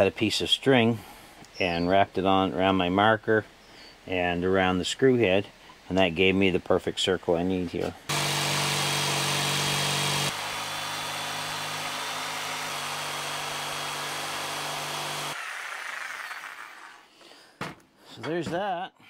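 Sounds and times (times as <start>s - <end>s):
jigsaw cutting plastic: 8.1s - 17.0s.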